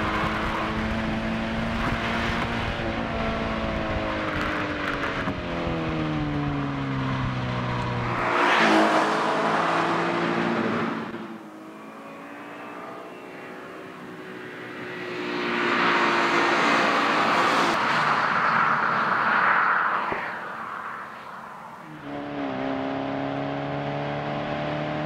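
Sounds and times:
car tyres on road: 0:00.0 - 0:25.0
car engine passing: 0:07.2 - 0:25.0.

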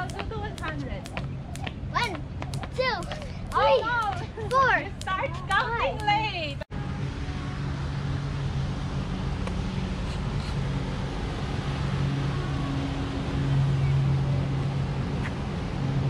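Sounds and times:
motorboat engine droning: 0:06.8 - 0:16.0.

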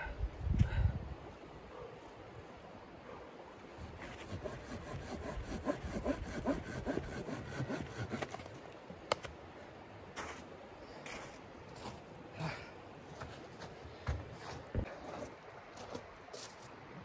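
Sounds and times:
pruning saw cutting a log: 0:03.8 - 0:08.6.

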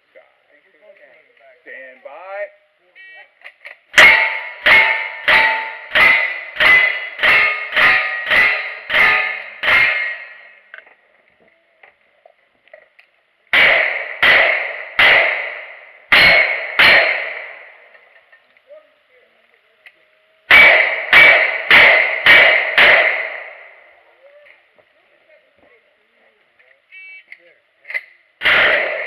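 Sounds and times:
rifle shots: 0:03.9 - 0:10.5, 0:13.5 - 0:17.8, 0:20.5 - 0:23.8, 0:28.4 - 0:29.0.

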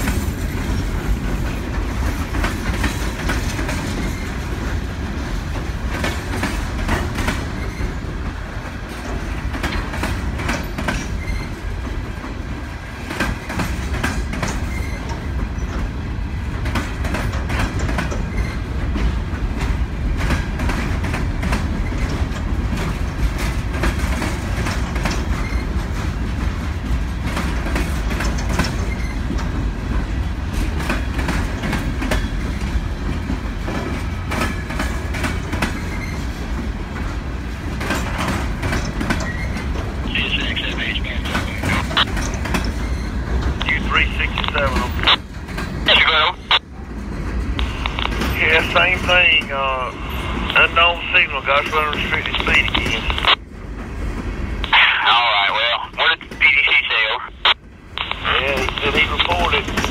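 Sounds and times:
freight train low rumble: 0:00.0 - 0:59.9
wheels clicking over rail joints: 0:08.8 - 0:12.0, 0:16.5 - 0:29.7, 0:37.7 - 0:39.9.

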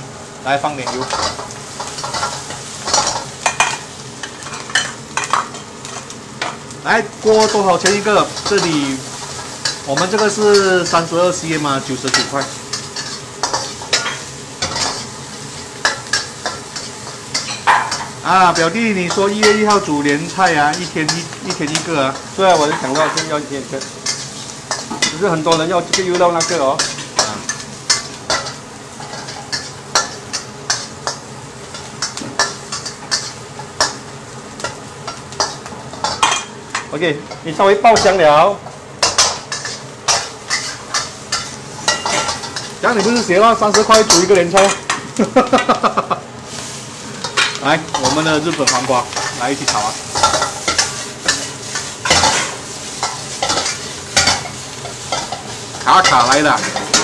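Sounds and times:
low sizzle of frying: 0:00.0 - 0:57.0
metal spatula scraping a wok: 0:39.0 - 0:44.2.

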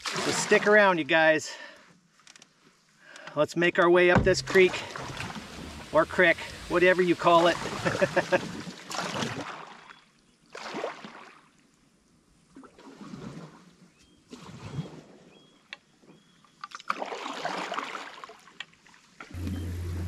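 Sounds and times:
paddle splashing in water: 0:00.0 - 0:00.7, 0:04.2 - 0:09.9, 0:16.9 - 0:20.0.

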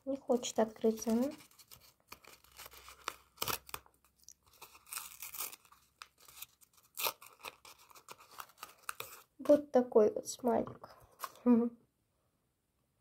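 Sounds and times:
paper packet rustling and tearing: 0:00.1 - 0:09.3.

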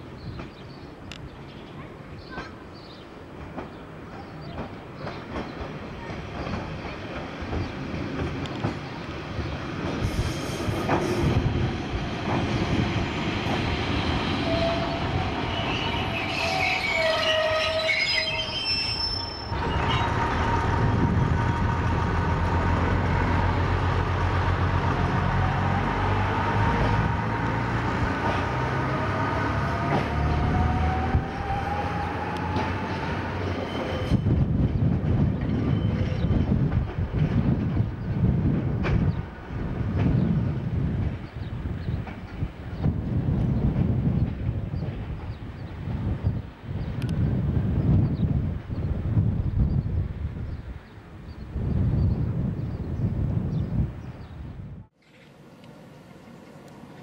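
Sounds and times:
diesel train engine rumbling: 0:00.0 - 0:52.5
high-pitched wheel squeals: 0:14.5 - 0:20.2.

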